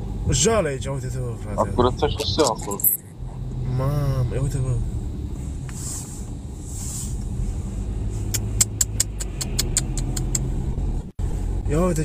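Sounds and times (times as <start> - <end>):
car engine and tyre hum: 0.0 - 12.0.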